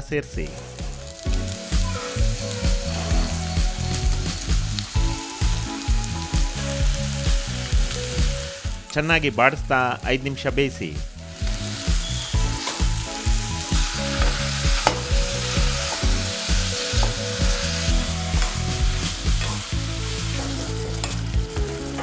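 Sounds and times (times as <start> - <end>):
mushrooms sizzling in pan: 0.4 - 8.9, 11.1 - 21.8.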